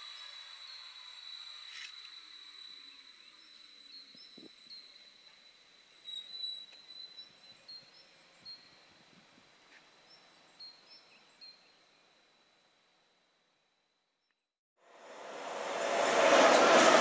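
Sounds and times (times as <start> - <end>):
faint bird chirps: 0.0 - 9.1
high whine: 14.9 - 17.0.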